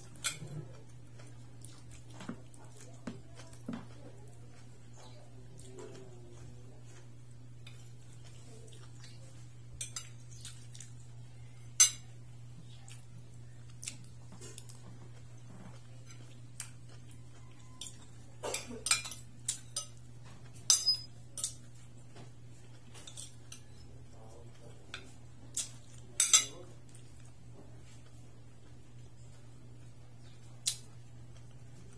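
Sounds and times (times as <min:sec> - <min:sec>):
cutlery clinking on a plate: 0:11.8 - 0:12.0, 0:17.6 - 0:21.7, 0:25.0 - 0:26.5.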